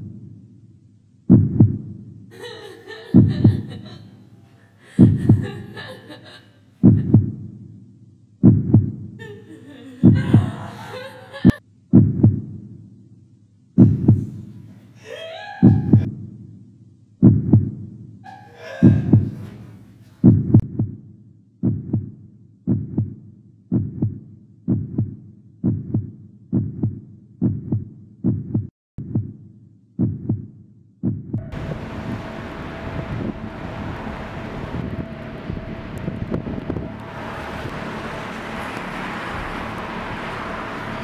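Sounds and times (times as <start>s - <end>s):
heartbeat double thump: 1.3s - 2.0s, 3.2s - 3.8s, 5.0s - 5.5s, 6.8s - 7.5s, 8.4s - 9.2s, 11.9s - 12.6s, 13.8s - 14.4s, 15.7s - 16.1s, 17.2s - 17.9s, 18.9s - 19.4s, 20.2s - 21.0s, 21.6s - 29.4s, 30.0s - 31.6s.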